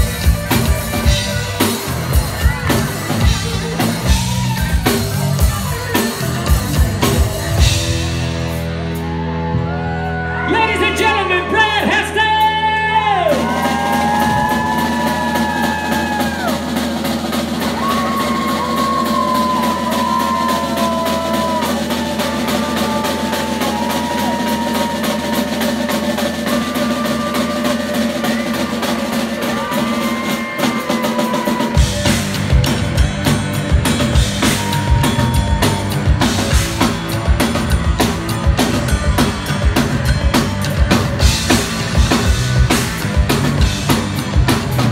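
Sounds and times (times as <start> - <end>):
drum kit beat: 0.0 - 10.0, 11.8 - 44.9
electric guitar: 0.0 - 10.5
bass guitar: 0.0 - 44.9.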